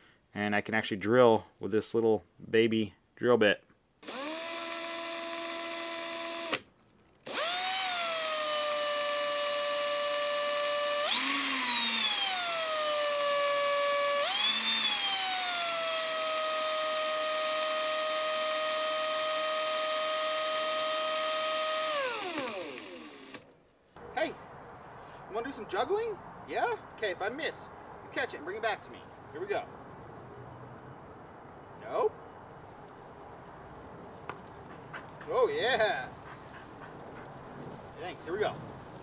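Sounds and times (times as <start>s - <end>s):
cordless drill motor whining: 4.0s - 23.4s.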